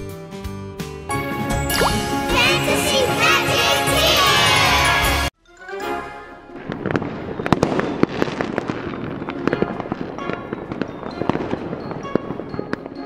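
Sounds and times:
twinkling chime tones: 0:01.5 - 0:04.6, 0:06.8 - 0:13.0.

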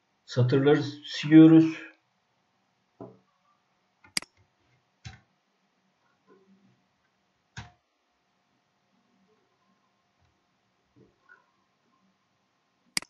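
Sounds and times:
mouse and keyboard clicks: 0:04.0 - 0:04.4.

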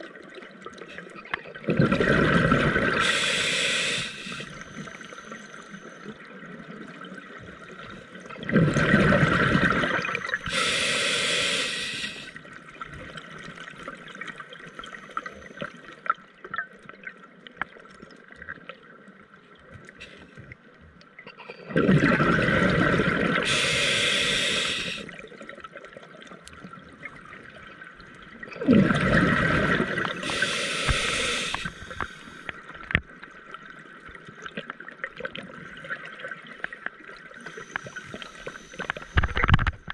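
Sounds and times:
quiet bubbling with clicks: 0:00.0 - 0:10.7, 0:11.8 - 0:23.5, 0:24.4 - 0:39.9
diver exhaling bubbles underwater: 0:01.6 - 0:04.5, 0:08.4 - 0:12.3, 0:21.6 - 0:25.2, 0:28.5 - 0:32.2.

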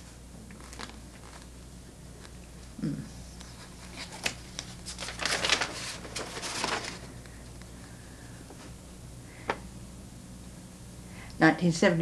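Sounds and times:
steady low hum: 0:00.0 - 0:12.0
paper rustling: 0:00.5 - 0:01.5, 0:03.3 - 0:07.1.

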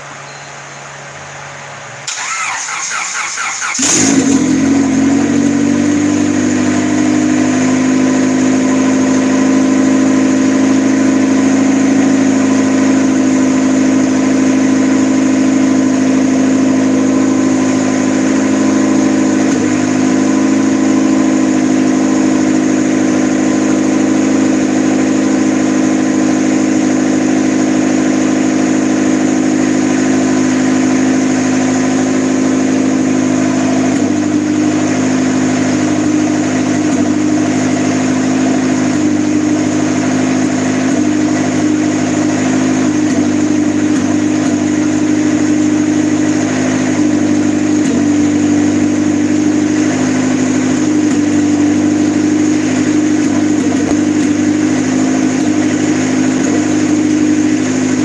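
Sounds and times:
car engine idling: 0:01.2 - 0:58.0
engine starter cranking: 0:02.1 - 0:04.5.

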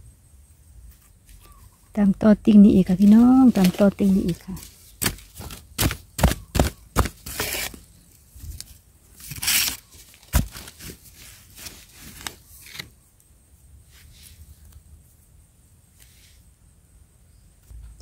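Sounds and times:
soil and roots scraping: 0:02.7 - 0:13.0
metal blade chopping into earth: 0:05.0 - 0:07.8.

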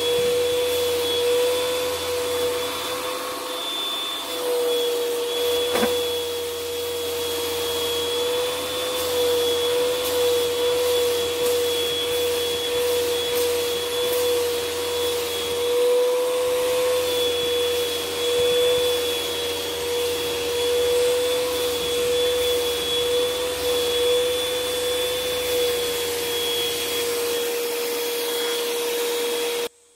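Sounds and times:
vacuum cleaner motor whine: 0:00.0 - 0:29.9.

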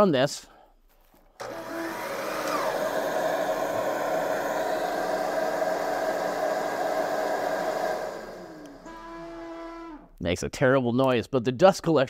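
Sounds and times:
saw motor whine coasting down: 0:01.4 - 0:10.1
shop vacuum running: 0:01.4 - 0:10.1.

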